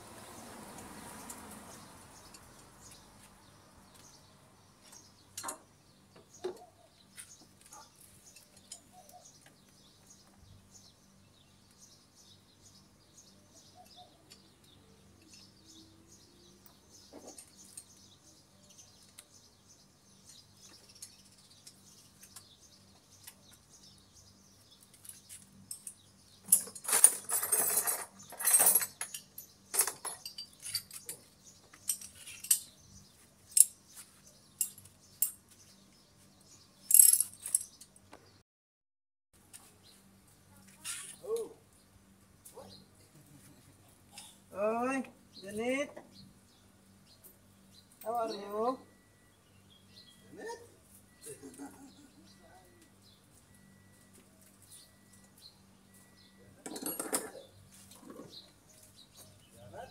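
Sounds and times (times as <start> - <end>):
bird chirps: 1.7 - 26.5, 45.2 - 59.9
metal hand tools clattering: 25.7 - 31.2, 56.6 - 57.5.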